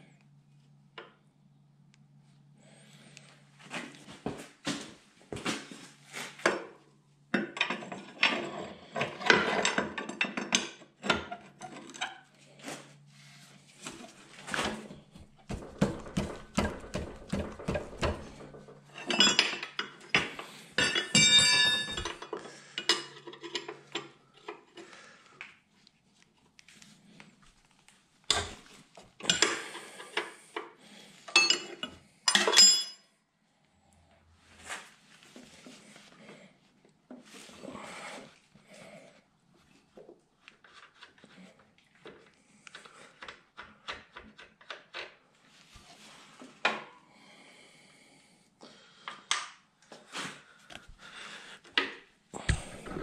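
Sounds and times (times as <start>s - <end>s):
wrench clinking against steel: 20.8s - 22.2s, 31.3s - 33.0s.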